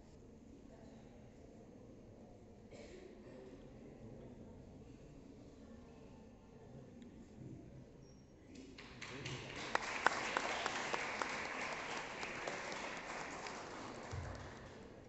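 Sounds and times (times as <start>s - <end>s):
audience applauding: 8.8s - 15.0s.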